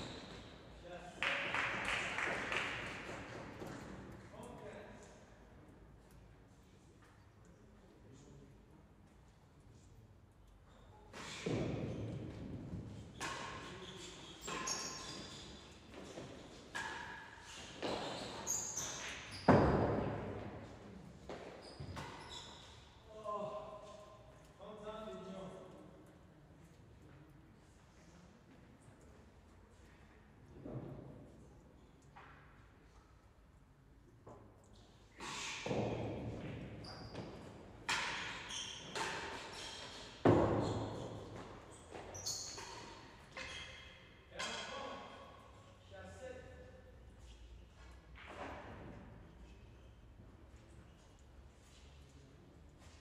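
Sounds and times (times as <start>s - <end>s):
tennis ball knocking in echoing hall: 0.0s - 4.5s, 11.1s - 22.4s, 35.2s - 45.4s.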